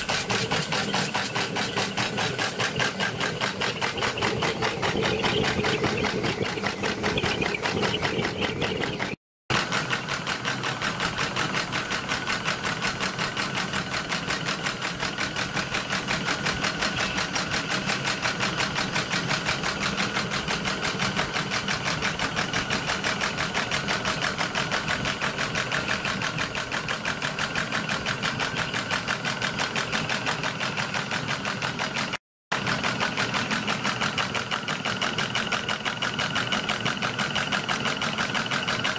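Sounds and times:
steam locomotive exhaust beats: 0:00.0 - 0:09.2.

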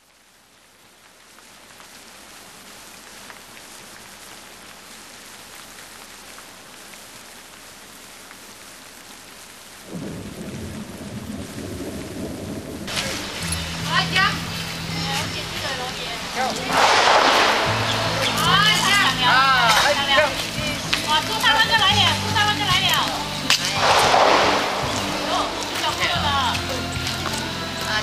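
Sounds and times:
steady rain falling: 0:00.0 - 0:28.0
deep rumble: 0:16.6 - 0:19.7, 0:23.7 - 0:26.6.

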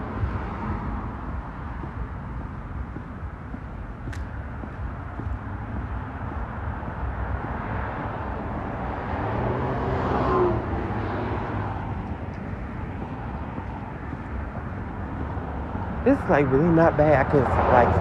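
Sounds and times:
street traffic rumbling: 0:00.0 - 0:18.0
vehicle driving past: 0:04.4 - 0:16.5.

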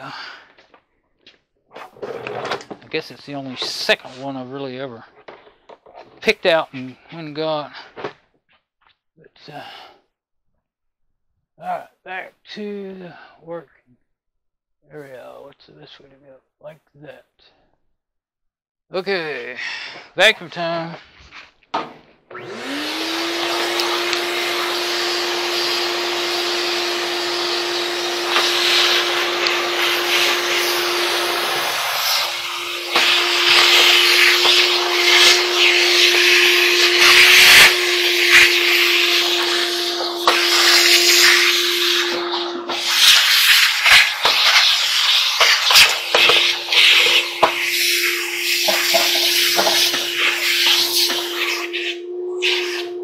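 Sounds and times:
shop vacuum whining: 0:22.3 - 0:53.0.

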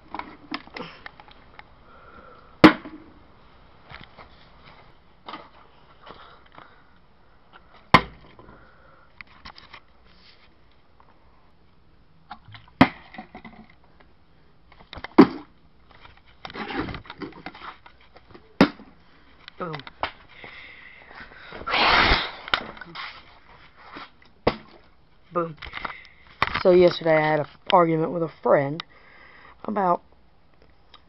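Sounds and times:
plastic bottle landing with thud: 0:02.6 - 0:03.1, 0:15.2 - 0:15.5.

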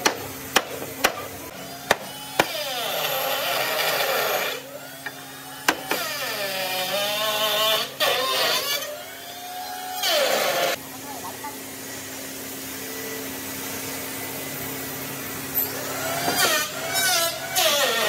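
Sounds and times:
motor-driven tool whirring: 0:01.6 - 0:10.8.

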